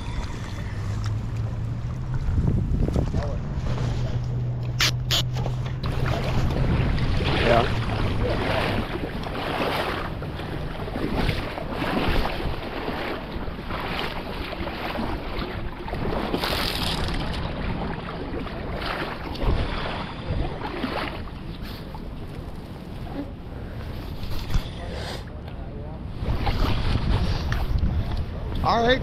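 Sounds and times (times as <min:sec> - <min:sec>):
wind buffeting microphone: 0:00.0 - 0:22.6, 0:26.0 - 0:29.0
creek water rushing: 0:03.5 - 0:22.3.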